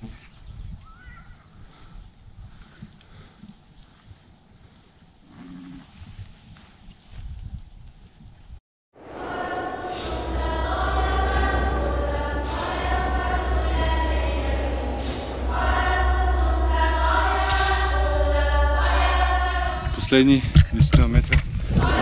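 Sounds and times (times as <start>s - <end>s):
choir singing: 9.0s - 20.4s, 21.7s - 22.0s
low drone: 9.0s - 20.5s.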